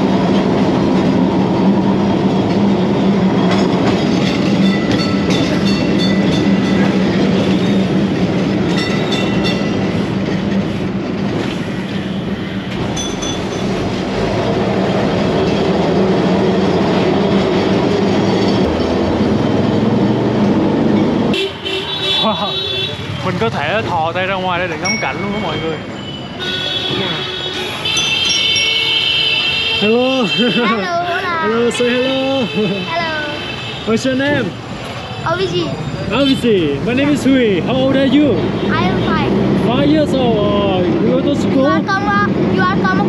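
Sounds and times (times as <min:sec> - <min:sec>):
wheels rattling and clacking: 0:00.0 - 0:21.4
electric tram hum and rumble: 0:00.0 - 0:43.0.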